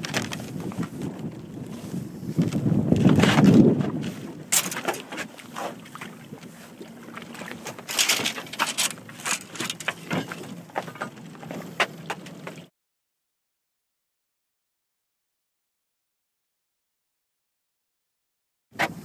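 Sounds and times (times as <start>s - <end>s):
sea water splashing: 0.0s - 12.7s.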